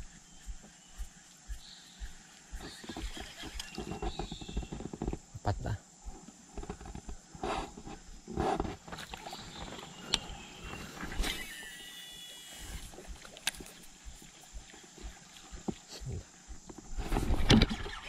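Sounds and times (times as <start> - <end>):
fishing reel spool whirring: 2.0 - 5.0, 9.3 - 15.6.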